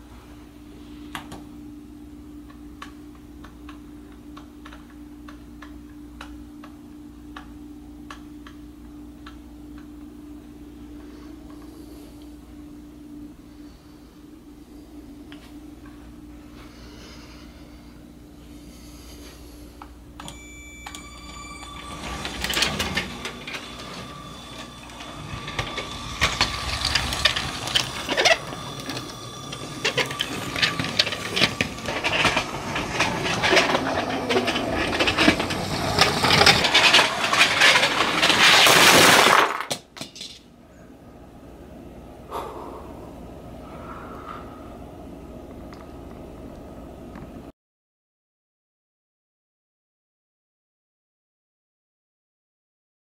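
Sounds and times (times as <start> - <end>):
toy train motor whine: 20.2 - 39.3
plastic wheels clicking and clattering: 21.0 - 40.4.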